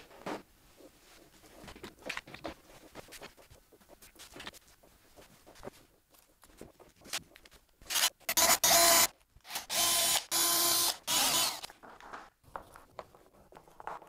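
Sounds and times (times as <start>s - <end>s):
cordless drill whirring: 7.9s - 11.7s.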